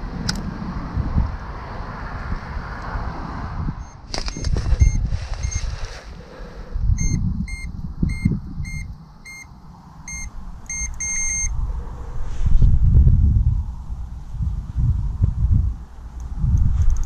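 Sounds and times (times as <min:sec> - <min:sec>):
wind rumble on microphone: 0:00.0 - 0:17.0
electronic bite alarm beeping: 0:03.8 - 0:05.7, 0:07.0 - 0:09.5, 0:10.1 - 0:11.5.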